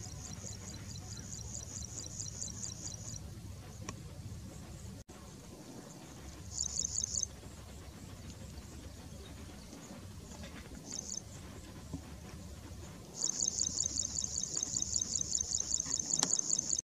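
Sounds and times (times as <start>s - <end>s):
insect chirping trills: 0.0s - 3.3s, 6.4s - 7.3s, 10.8s - 11.3s, 13.2s - 16.8s
low background rumble: 0.0s - 16.8s.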